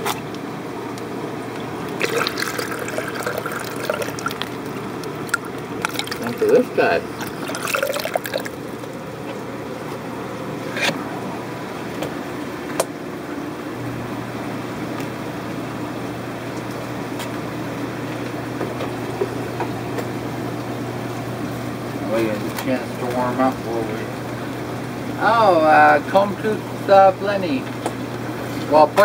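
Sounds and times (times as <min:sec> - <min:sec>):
low steady hum: 0:00.0 - 0:29.0
water trickling and splashing: 0:01.9 - 0:09.5.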